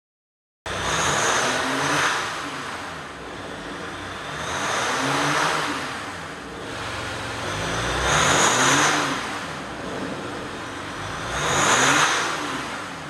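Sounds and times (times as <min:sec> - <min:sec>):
engine revving: 0:00.7 - 0:13.0
diesel engine idling: 0:06.0 - 0:13.0.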